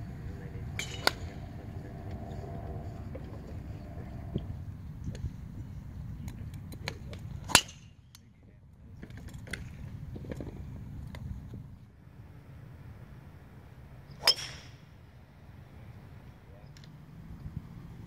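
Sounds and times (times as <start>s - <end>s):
golf driver striking ball: 14.2s - 14.8s.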